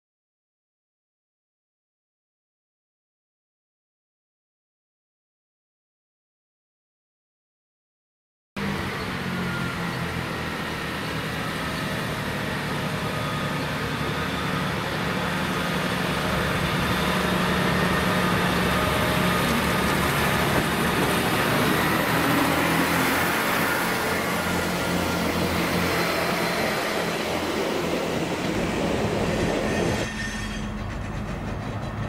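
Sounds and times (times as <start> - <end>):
train diesel engines droning: 8.6 - 32.0
wheels on rails: 10.6 - 32.0.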